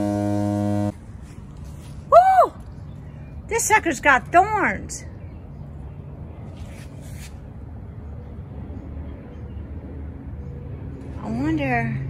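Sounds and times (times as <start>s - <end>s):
low hum: 0.0s - 3.4s.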